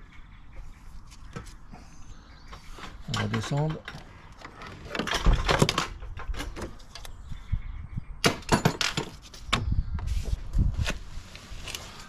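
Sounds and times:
handling clicks and knocks: 2.5s - 7.2s.

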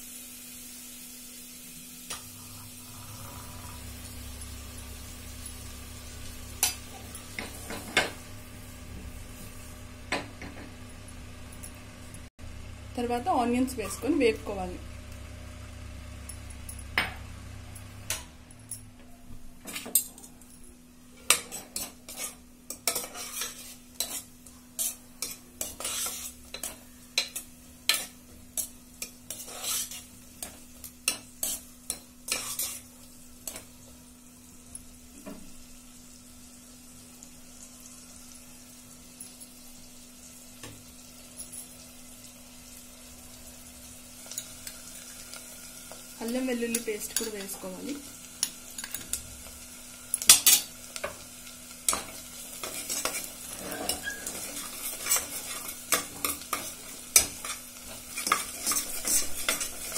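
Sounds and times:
onions sizzling in butter: 0.0s - 18.3s, 20.8s - 59.9s
spoon scraping a pot: 21.2s - 33.6s, 51.9s - 59.9s.

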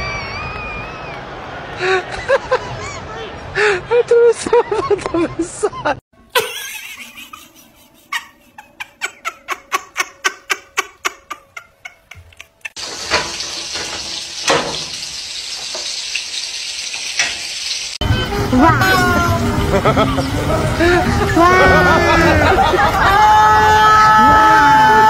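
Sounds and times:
patties sizzling in frying pan: 12.8s - 18.0s.

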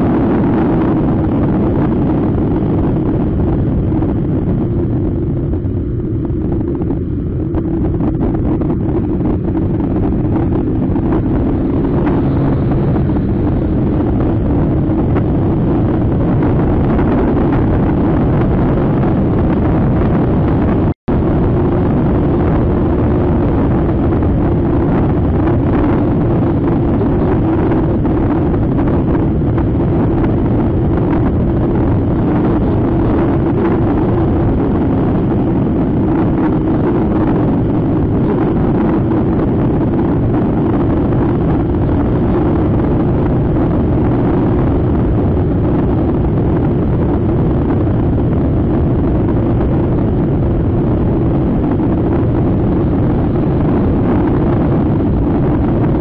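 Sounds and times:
wind rush on microphone: 0.0s - 56.0s
scooter engine running: 8.8s - 15.2s.

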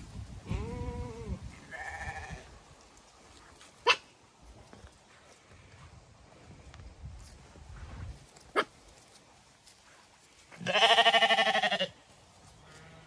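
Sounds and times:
sheep bleating: 0.5s - 2.5s, 10.6s - 12.0s, 12.6s - 13.0s.

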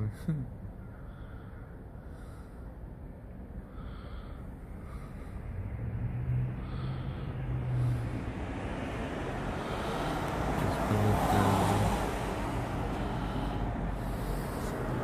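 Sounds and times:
motor vehicle passing by: 4.9s - 15.0s.

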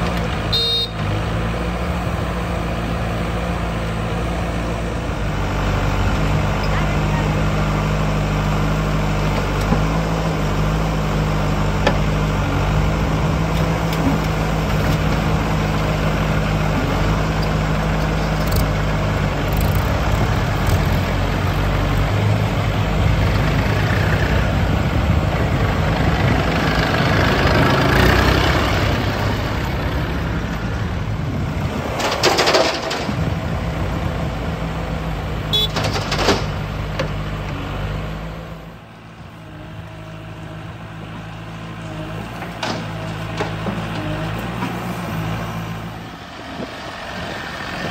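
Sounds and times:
diesel engines running: 0.0s - 47.9s.

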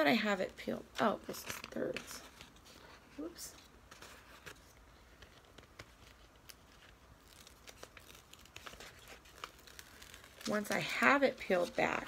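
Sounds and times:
cover sheet peeling from sticky canvas: 3.9s - 10.9s.

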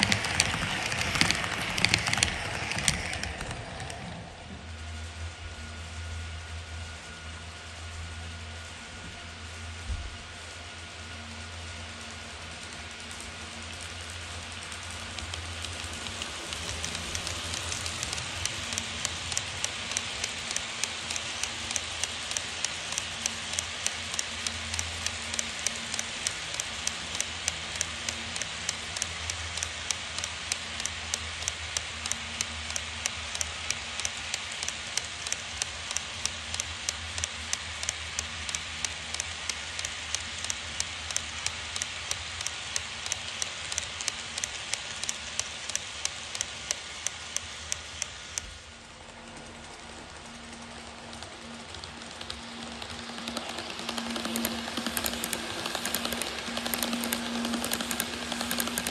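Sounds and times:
wheels clicking over rail joints: 0.0s - 4.7s, 13.0s - 58.9s
low motor hum: 0.0s - 34.0s
model train rolling hiss: 0.0s - 58.9s.

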